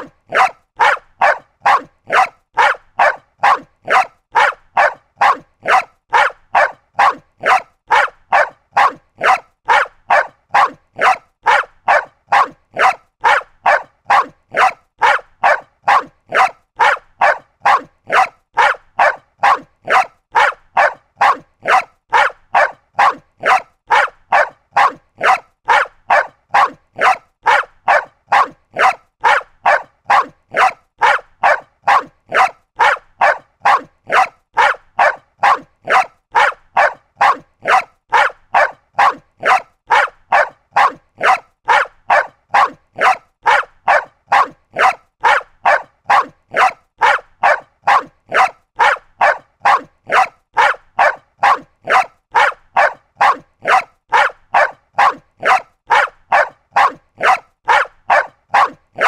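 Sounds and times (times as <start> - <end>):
small dog barking: 0.0 - 59.0.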